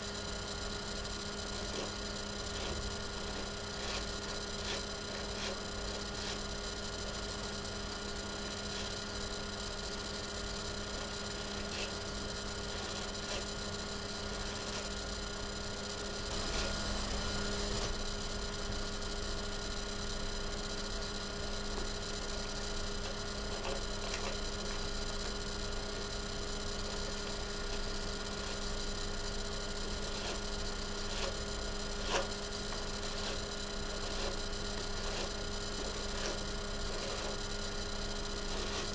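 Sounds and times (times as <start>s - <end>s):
steady electrical hum: 0.0s - 38.9s.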